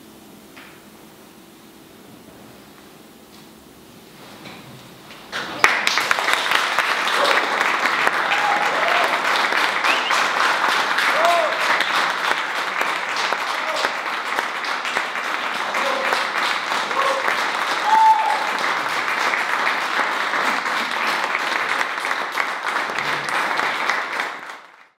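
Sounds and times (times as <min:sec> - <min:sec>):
audience applauding: 0:05.3 - 0:25.0
crowd cheering: 0:05.4 - 0:25.0.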